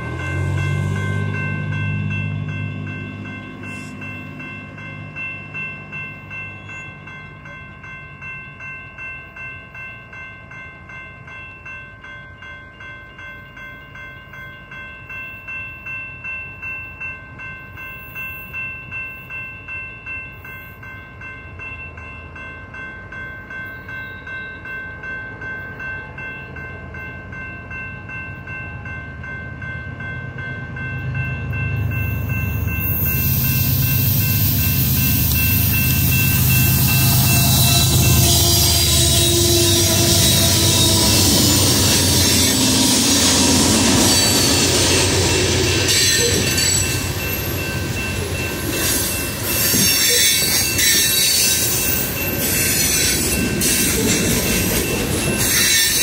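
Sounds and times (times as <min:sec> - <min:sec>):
diesel locomotive rumble: 0:00.0 - 0:09.1, 0:25.8 - 0:56.0
railroad crossing bell ringing: 0:00.0 - 0:56.0.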